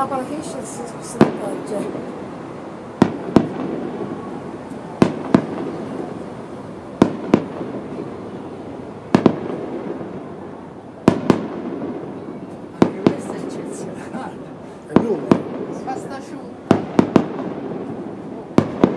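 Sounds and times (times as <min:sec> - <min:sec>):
firework shells bursting with bangs: 0:03.0 - 0:04.2, 0:05.0 - 0:06.2, 0:07.0 - 0:08.2, 0:09.1 - 0:10.4, 0:11.0 - 0:13.9, 0:14.8 - 0:16.0, 0:16.6 - 0:18.9.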